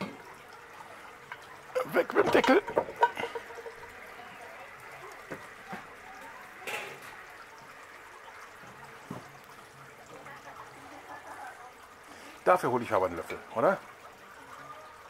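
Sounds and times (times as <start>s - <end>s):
spinach bubbling in pot: 0.0s - 15.0s
metal tongs striking pot: 1.2s - 3.8s.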